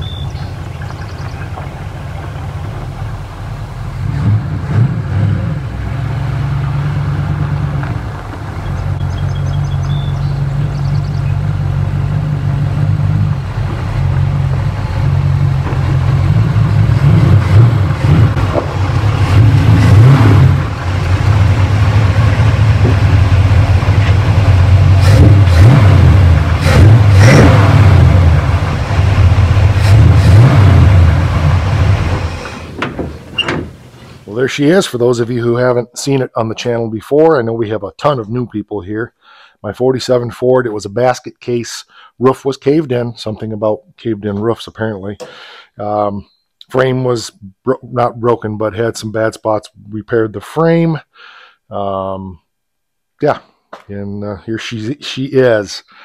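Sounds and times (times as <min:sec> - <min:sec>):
car engine running: 0:00.0 - 0:34.4
engine throttle blips: 0:00.0 - 0:35.6.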